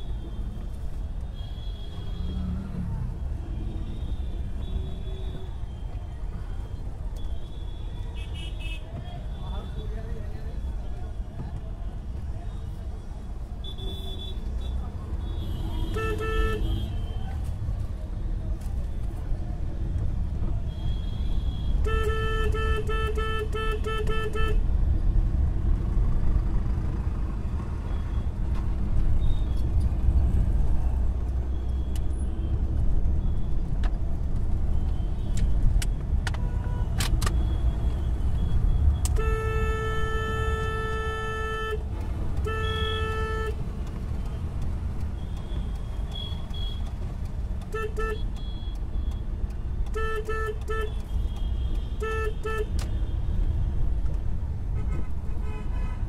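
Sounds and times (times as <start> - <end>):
engine and road rumble: 0.0 - 56.0
car horns honking: 13.7 - 17.2, 20.7 - 24.6, 36.4 - 43.8, 47.6 - 49.1, 49.8 - 53.4.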